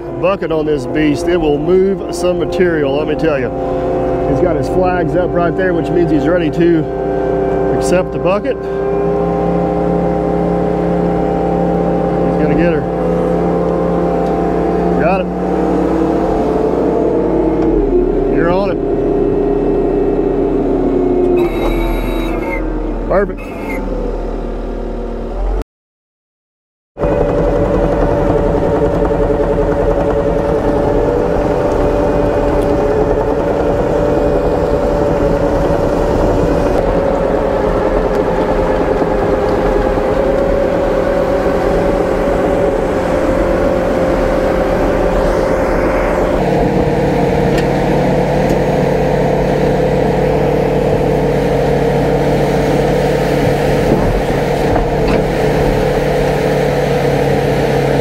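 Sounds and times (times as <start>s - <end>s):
diesel engine running under load: 0.0s - 25.6s, 27.0s - 58.0s.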